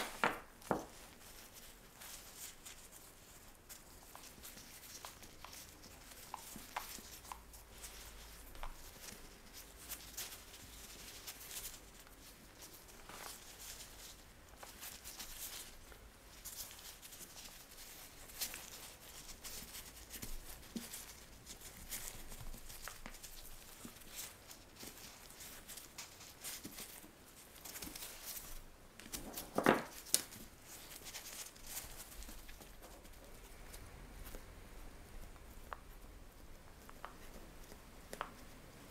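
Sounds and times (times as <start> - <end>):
soft pats and taps of dough: 0.0 - 1.2, 35.2 - 38.6
glove rustles: 0.0 - 38.9.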